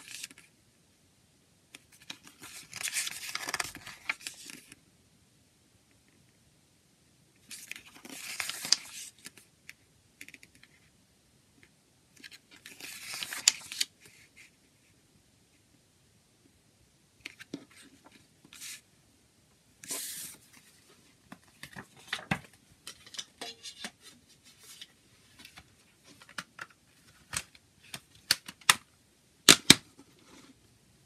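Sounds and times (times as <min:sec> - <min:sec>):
paper booklet rustling: 0:00.0 - 0:00.5, 0:01.8 - 0:04.8, 0:07.4 - 0:09.5, 0:12.2 - 0:14.6, 0:19.8 - 0:28.8.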